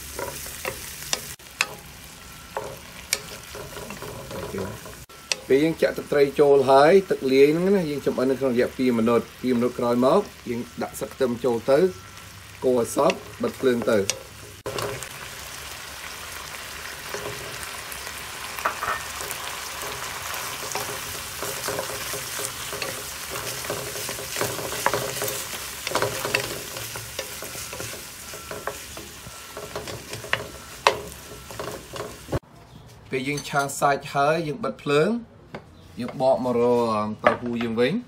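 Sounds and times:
spatula scraping and clicking on pan: 0.0 - 5.5, 13.0 - 15.3, 17.0 - 17.7, 18.6 - 32.4
meat sizzling in a frying pan: 0.0 - 32.4.

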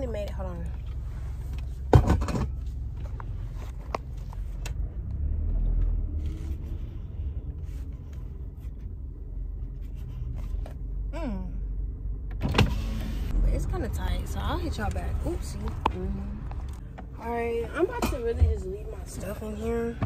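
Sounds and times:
car interior engine rumble: 0.0 - 20.0.

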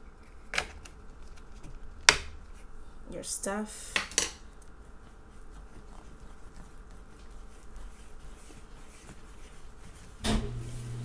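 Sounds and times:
hand rubbing dough in bowl: 4.6 - 11.0
washing machine humming: 9.4 - 11.0.

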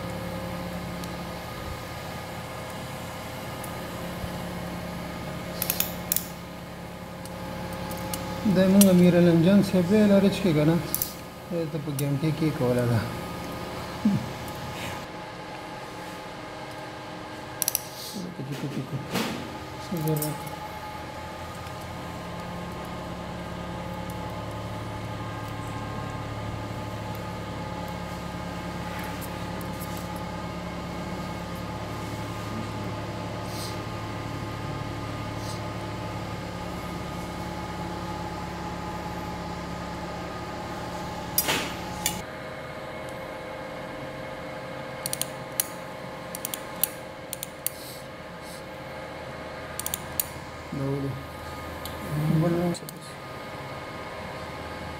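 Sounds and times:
machine hum: 0.0 - 54.9
sharp click: 49.8 - 50.3.

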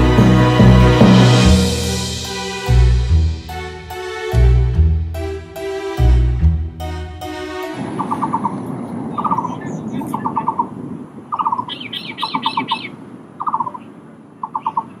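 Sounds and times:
higher-pitched bird chirping: 7.6 - 15.0
bird hooting calls: 8.0 - 15.0.

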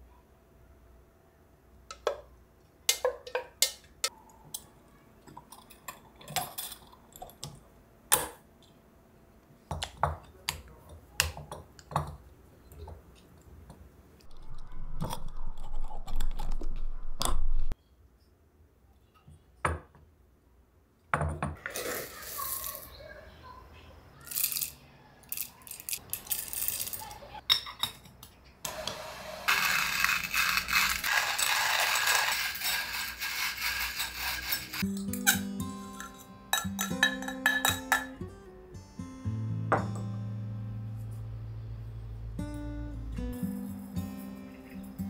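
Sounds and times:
coffee beans rattling in glass jar: 25.3 - 27.2, 29.5 - 34.8
spoon scraping pot: 29.5 - 35.4
glass clinking: 34.8 - 38.2.

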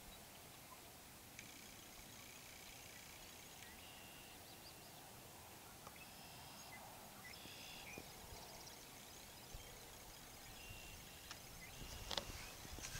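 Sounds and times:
faint outdoor hiss: 0.0 - 12.9.

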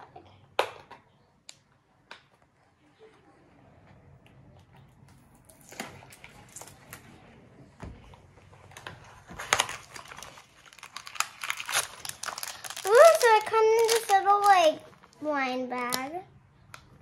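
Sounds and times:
packaging crinkling and rustling: 8.7 - 15.2.

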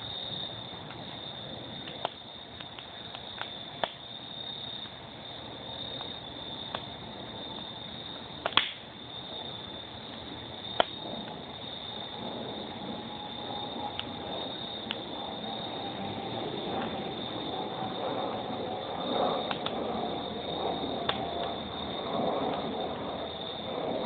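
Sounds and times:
wood fire crackling: 0.0 - 24.0.

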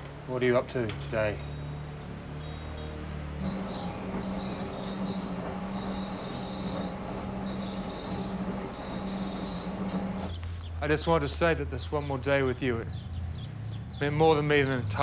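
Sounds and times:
washing machines low hum: 3.1 - 10.4.

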